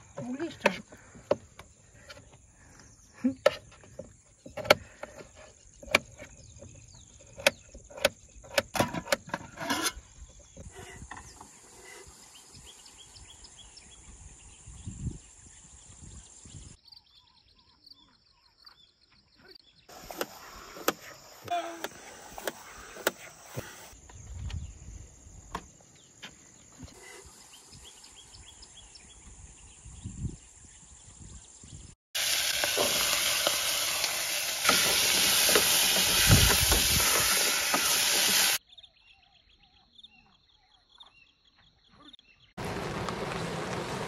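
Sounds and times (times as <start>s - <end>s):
hiss and sizzle from pot: 32.2s - 38.6s
steady rain-like hiss: 42.6s - 44.0s.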